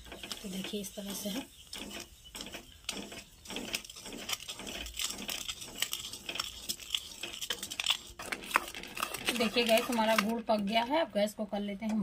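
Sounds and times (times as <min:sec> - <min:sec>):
spoon scraping in pot: 0:00.0 - 0:11.1
syrup bubbling: 0:01.4 - 0:10.6.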